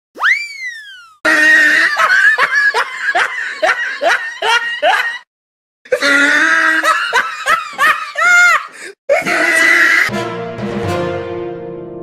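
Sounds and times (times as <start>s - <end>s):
swooping comic tone: 0.2s - 1.2s.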